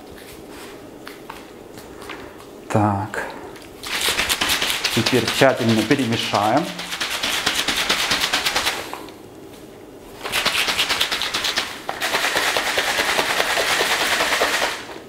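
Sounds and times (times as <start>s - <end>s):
shaker bottle rattling: 3.8s - 8.8s, 10.2s - 15.0s.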